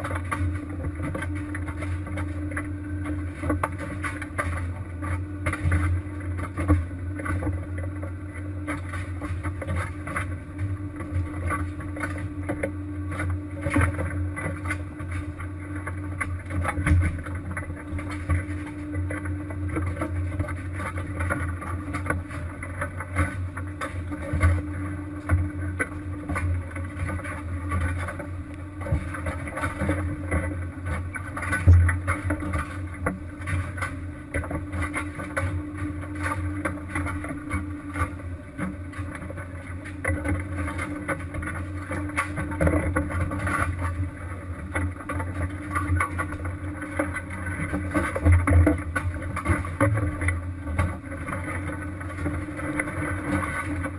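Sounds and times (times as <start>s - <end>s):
boat engine droning: 0.0s - 53.9s.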